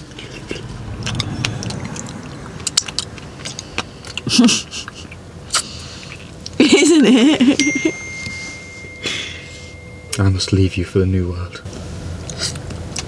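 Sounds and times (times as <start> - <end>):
person chewing and sucking: 0.0 - 6.6
lip smacks and mouth clicks: 0.1 - 6.6.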